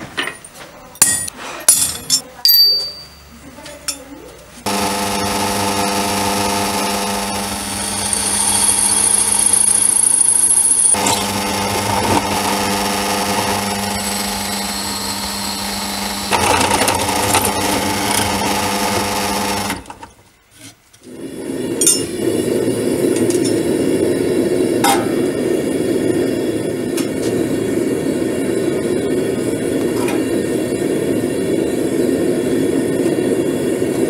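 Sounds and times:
sharp metal clinks: 1.0s - 3.3s
gas forge burner rushing: 4.6s - 20.2s, 20.9s - 34.0s
electric drill boring through steel: 4.7s - 19.9s.

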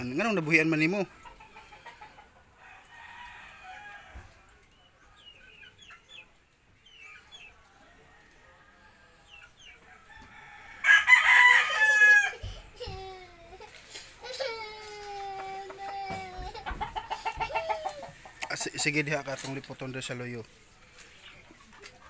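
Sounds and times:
rooster crowing: 9.9s - 12.4s.

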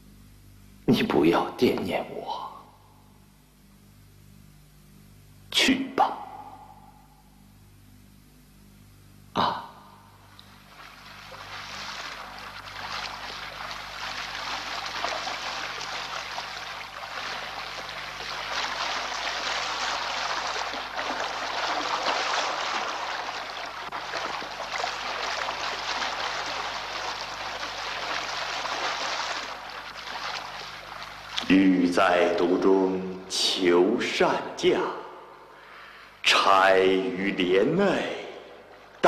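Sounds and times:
water splashing against boat hull: 10.4s - 31.5s.

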